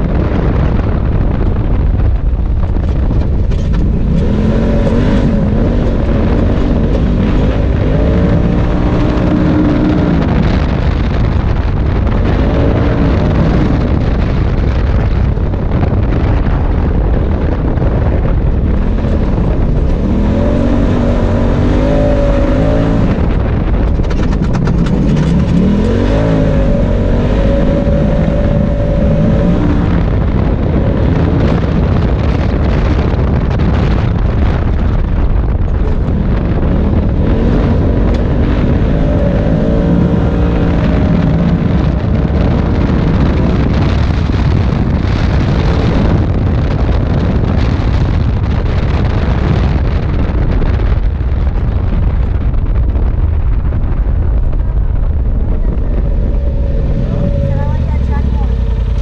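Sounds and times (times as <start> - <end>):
off-road vehicle engine revving: 2.6 - 49.8, 55.2 - 59.0.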